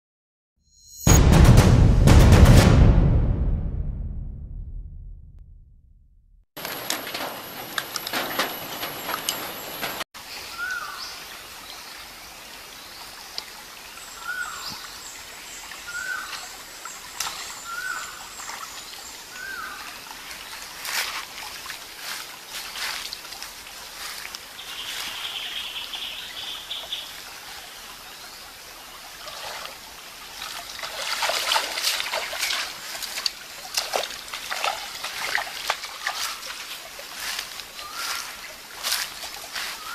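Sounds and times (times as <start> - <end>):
stream trickling over stones: 6.6 - 39.9
splashes of wading footsteps: 17.2 - 25.2, 29.2 - 39.9
bird falling call: 37.8 - 38.3.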